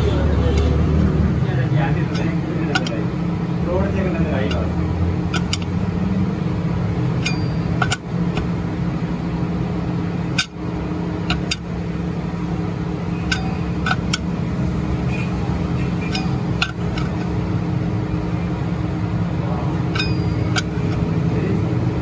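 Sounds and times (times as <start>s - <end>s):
machine hum with low drone: 0.0s - 22.0s
sharp metallic clicks: 2.1s - 3.1s, 4.4s - 5.8s, 7.2s - 8.5s, 10.3s - 10.6s, 11.2s - 11.7s, 13.2s - 14.4s, 15.9s - 17.4s, 19.8s - 21.1s.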